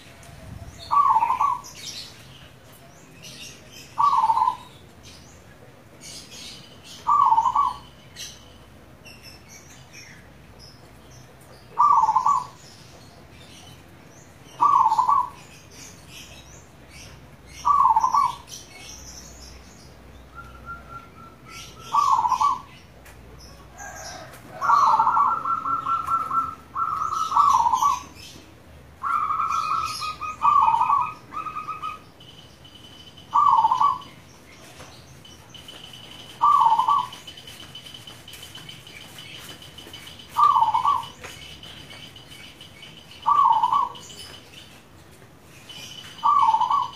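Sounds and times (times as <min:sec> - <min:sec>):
small birds chirping: 0:00.0 - 0:46.9
dove cooing: 0:00.2 - 0:01.8, 0:04.0 - 0:04.7, 0:07.0 - 0:07.8, 0:11.8 - 0:12.6, 0:14.6 - 0:15.4, 0:17.6 - 0:18.5, 0:20.6 - 0:22.7, 0:23.8 - 0:28.2, 0:29.0 - 0:32.0, 0:33.3 - 0:34.1, 0:36.3 - 0:37.2, 0:40.3 - 0:41.2, 0:43.2 - 0:44.0, 0:46.2 - 0:46.9.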